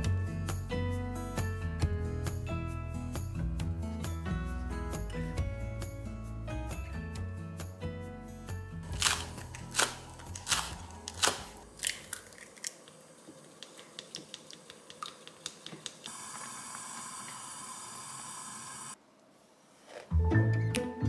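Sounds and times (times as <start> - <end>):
soup boiling with steady hiss: 9.3 - 19.0.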